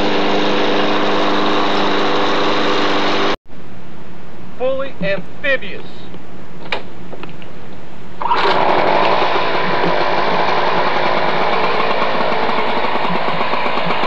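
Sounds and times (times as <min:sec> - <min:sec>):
lawn mower engine running: 0:00.0 - 0:03.4, 0:08.2 - 0:14.0.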